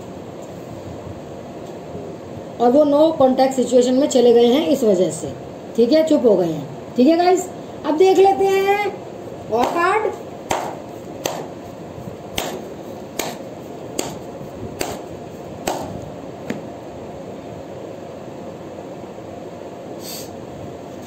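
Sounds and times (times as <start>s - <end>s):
faint hiss: 19.8s - 21.0s.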